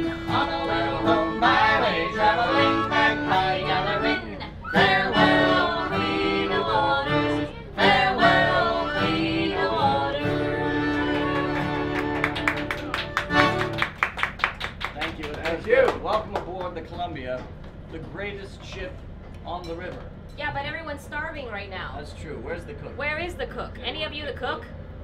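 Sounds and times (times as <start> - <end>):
strummed acoustic guitar: 0.0 - 4.2, 4.8 - 13.7
men singing together: 0.0 - 10.6
accordion: 0.0 - 14.0.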